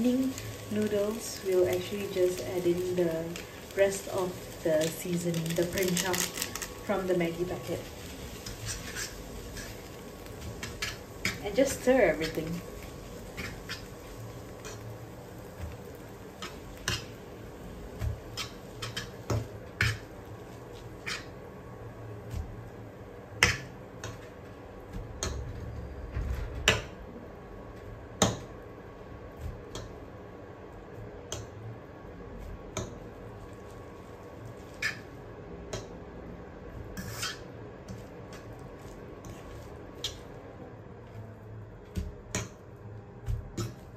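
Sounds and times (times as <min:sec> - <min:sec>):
utensil scraping frying pan: 0:00.2 - 0:17.3, 0:18.0 - 0:21.4, 0:34.4 - 0:35.1, 0:37.0 - 0:40.3.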